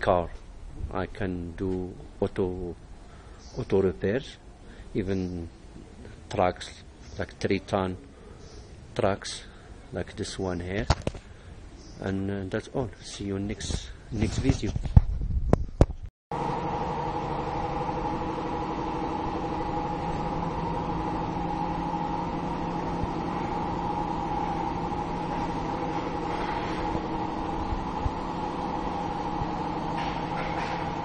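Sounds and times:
machine drone with hum: 16.3s - 31.0s.

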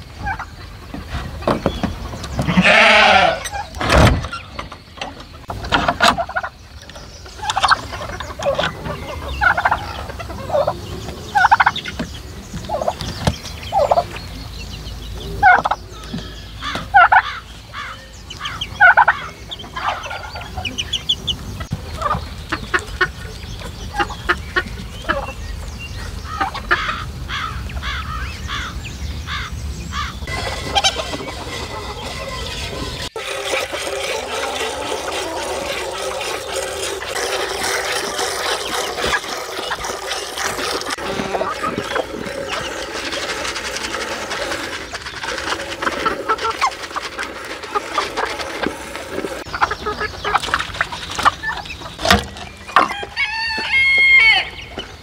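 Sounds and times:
chickens clucking: 0.0s - 55.0s
turkey gobbling: 0.2s - 0.9s, 6.0s - 6.6s, 7.3s - 12.0s, 12.7s - 13.0s, 13.7s - 14.2s, 15.4s - 15.8s, 16.6s - 23.2s, 26.3s - 28.7s, 29.3s - 52.1s, 52.7s - 54.6s
wooden door creaking: 3.7s - 4.8s.

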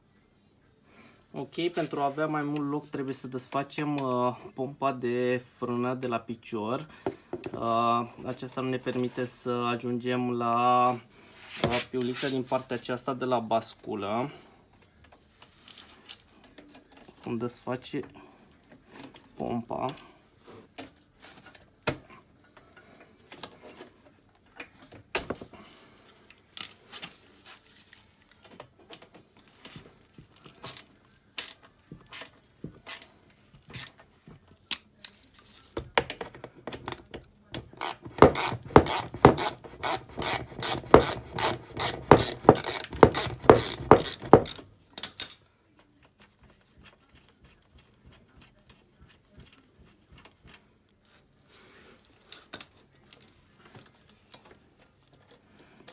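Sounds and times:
ratchet wrench clicking: 32.9s - 33.1s, 37.8s - 45.4s
tool taps: 35.8s - 44.6s.

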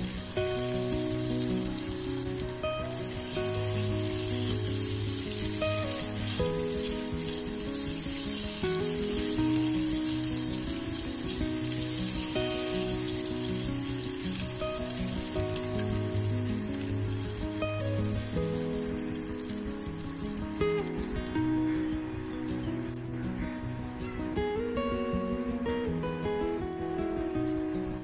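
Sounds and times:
oil sizzling in a pan: 0.0s - 21.0s
background music: 0.0s - 28.0s.

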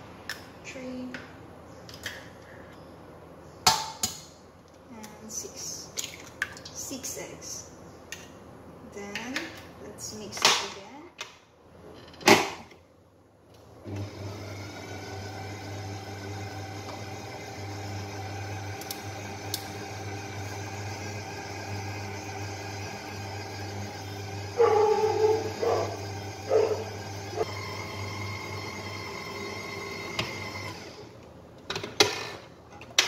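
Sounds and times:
stand mixer motor hum: 13.9s - 31.1s.

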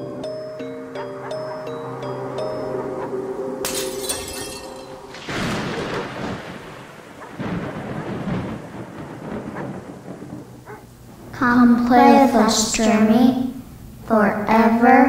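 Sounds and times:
thunder rumbling: 4.6s - 14.1s
thunder crack: 4.7s - 13.0s.

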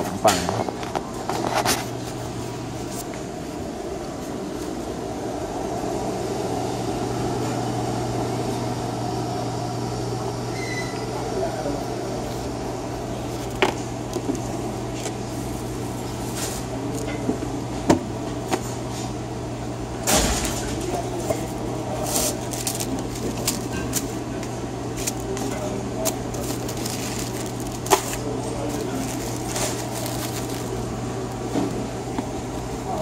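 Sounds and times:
paper rustling: 21.2s - 24.2s, 24.9s - 30.9s.

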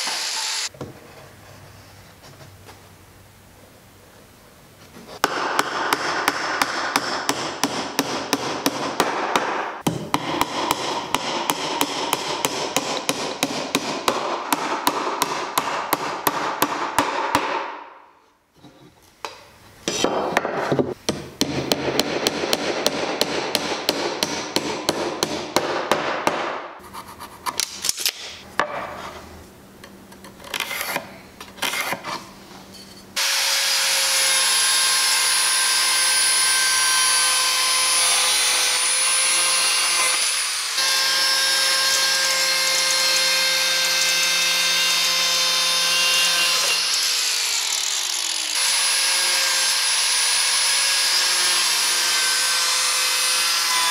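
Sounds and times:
angle grinder cutting wood: 0.0s - 0.7s, 33.2s - 53.9s
hammering nails into wood: 5.2s - 17.9s, 19.9s - 26.7s.

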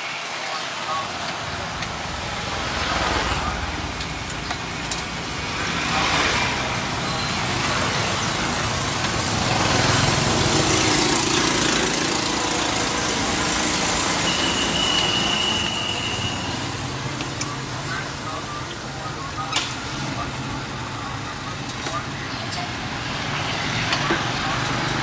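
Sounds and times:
road traffic passing: 0.0s - 25.0s
thin high tone: 14.1s - 17.7s.

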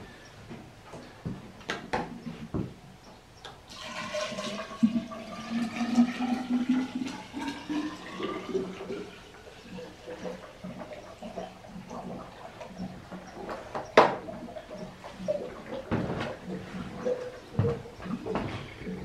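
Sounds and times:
liquid pouring into tube: 3.7s - 12.7s.

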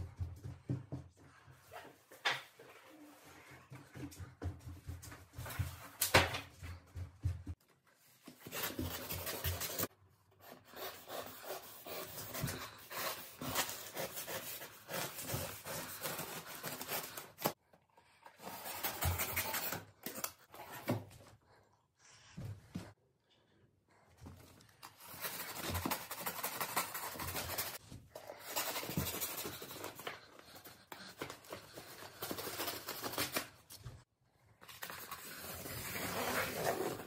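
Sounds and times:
knife cutting cardboard: 8.4s - 17.5s.

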